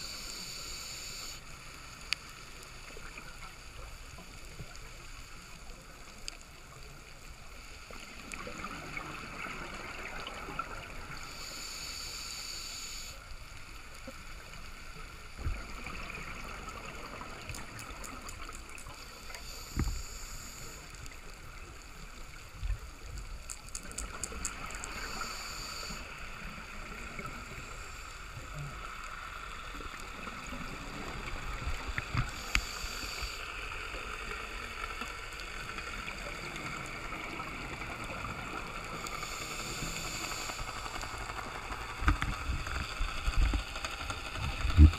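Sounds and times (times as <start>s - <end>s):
muffled water hiss: 0.0s - 44.9s
exhaled bubbles gurgling: 8.0s - 11.3s.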